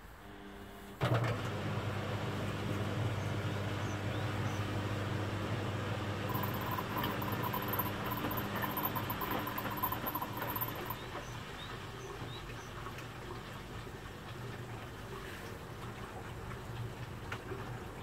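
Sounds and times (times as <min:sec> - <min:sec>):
washing machine drum tumbling laundry: 0:01.0 - 0:11.3
motor hum: 0:01.1 - 0:11.8
fluttering high whine: 0:06.3 - 0:11.0.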